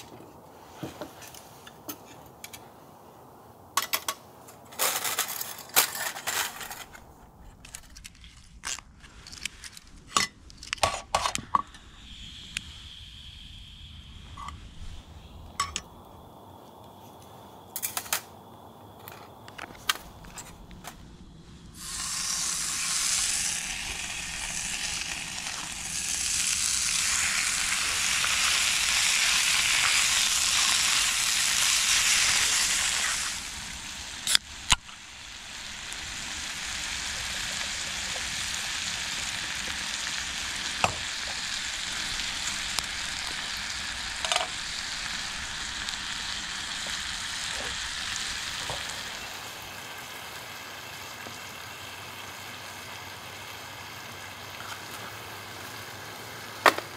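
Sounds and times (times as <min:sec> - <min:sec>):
food sizzling in a pan: 0:21.2 - 0:56.9.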